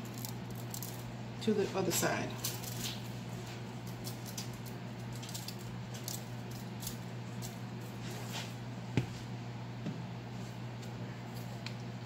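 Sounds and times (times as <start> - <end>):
seasoning shaker rattling: 0.0 - 1.1, 2.4 - 3.1, 3.8 - 8.0.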